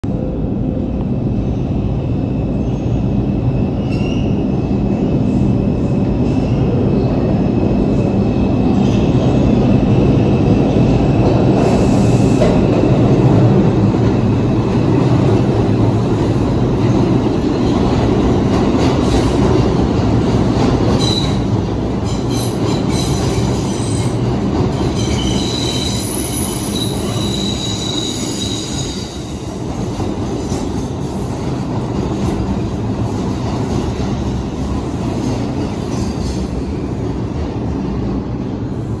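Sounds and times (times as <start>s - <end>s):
subway train wheels rumbling: 0.0s - 39.0s
high wheel squeal: 25.0s - 29.2s.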